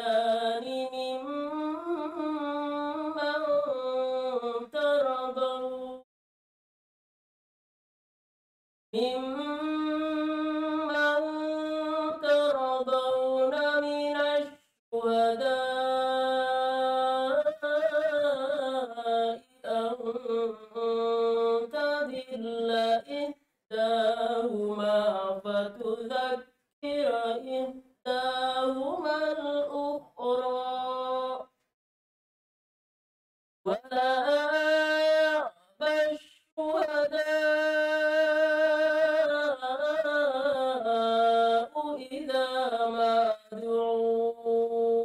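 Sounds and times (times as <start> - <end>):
woman chanting a recitation: 9.0 - 31.4, 33.7 - 45.0.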